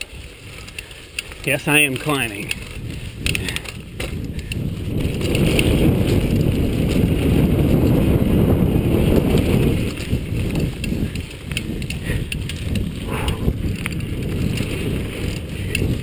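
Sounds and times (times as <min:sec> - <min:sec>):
tyres crunching over rock: 0:00.0 - 0:07.4
bike rattling and clicking: 0:00.0 - 0:16.0.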